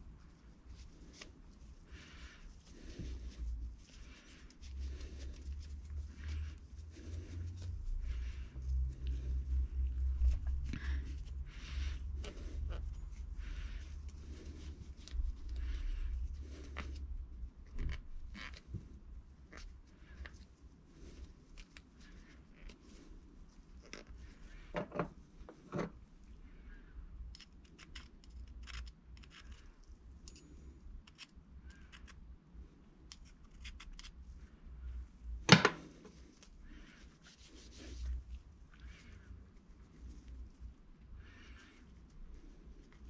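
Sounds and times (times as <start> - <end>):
small metal clicks and scrapes: 27.3 - 32.2
cloth rag rubbing: 36.8 - 38.4.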